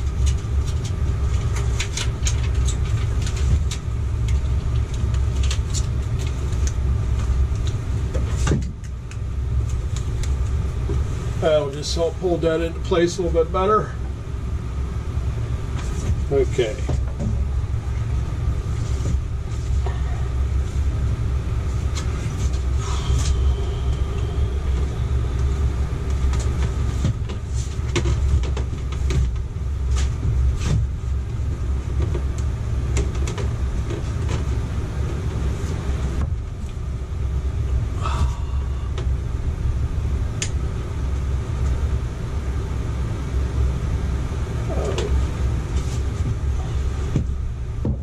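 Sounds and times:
low rumble: 0.0s - 48.0s.

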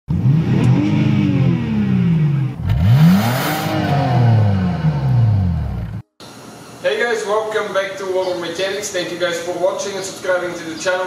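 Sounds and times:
car engine revving: 0.1s - 6.0s.

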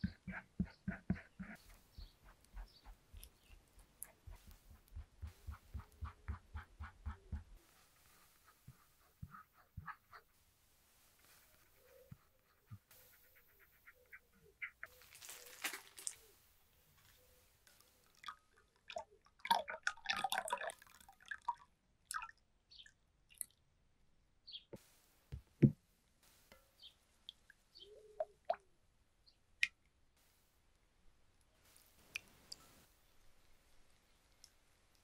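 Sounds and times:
plastic crinkling: 14.9s - 16.3s
liquid trickling and dripping: 17.6s - 23.6s.

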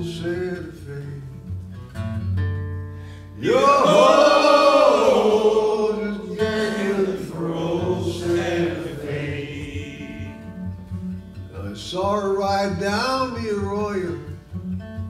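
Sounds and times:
man singing: 0.0s - 1.4s, 5.7s - 10.5s, 11.5s - 14.4s
strummed acoustic guitar: 0.0s - 15.0s
audience singing along: 3.4s - 10.7s.

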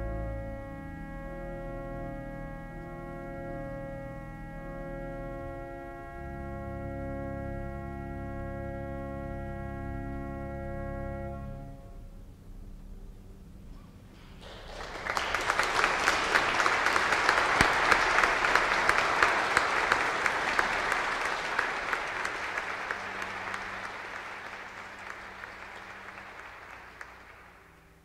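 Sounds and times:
audience applauding: 14.2s - 28.0s.

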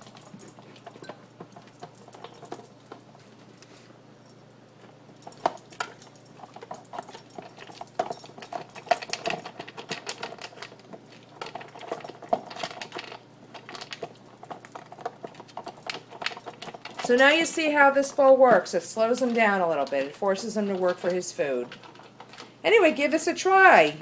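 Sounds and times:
kibble and plastic lid rattling: 5.3s - 17.6s.

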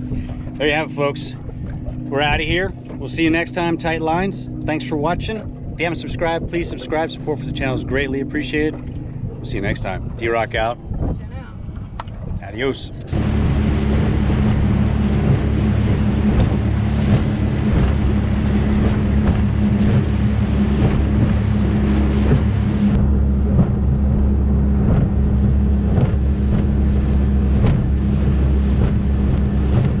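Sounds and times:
motorboat engine drone: 0.0s - 30.0s
water rushing past hull: 0.0s - 30.0s
wind buffeting microphone: 0.0s - 30.0s.

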